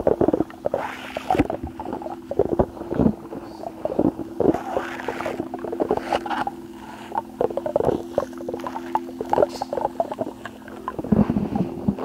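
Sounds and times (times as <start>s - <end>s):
faint steady hum: 0.0s - 12.0s
squishy toy squelching and crackling: 0.0s - 12.0s.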